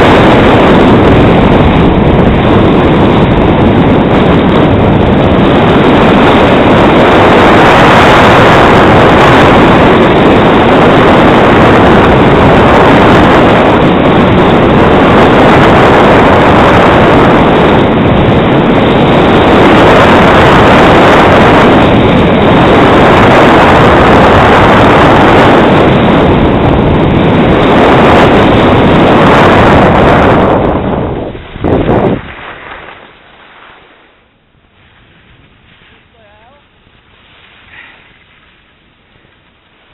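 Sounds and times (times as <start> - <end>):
wind rush on microphone: 0.0 - 39.9
skis sliding over packed snow: 32.2 - 39.9.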